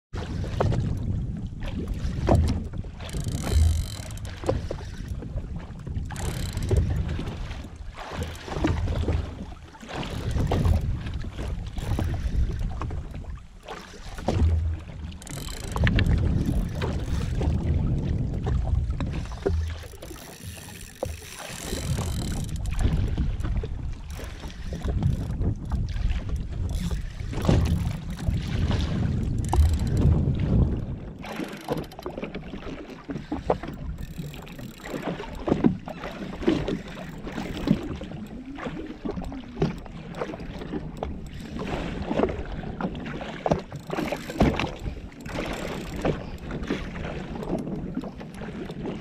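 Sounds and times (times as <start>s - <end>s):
water lapping against hull: 0.1s - 49.0s
wind buffeting microphone: 0.2s - 49.0s
scattered clicks: 3.1s - 4.6s, 15.2s - 17.5s, 19.6s - 22.8s, 29.3s - 30.1s.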